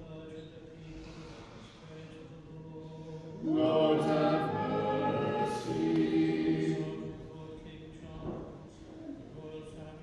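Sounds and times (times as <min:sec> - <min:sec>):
small choir singing in harmony: 0:02.6 - 0:07.6.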